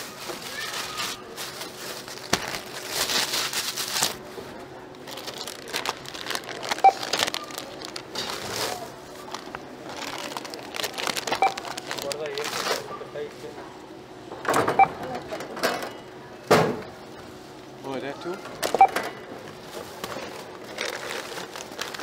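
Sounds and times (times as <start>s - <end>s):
plastic bags rustling: 0.0s - 13.4s, 19.6s - 22.0s.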